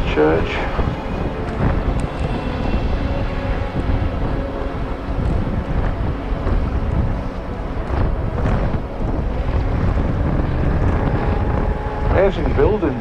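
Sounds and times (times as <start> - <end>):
wind rumble on microphone: 0.0 - 13.0
motorbike engine running: 4.2 - 13.0.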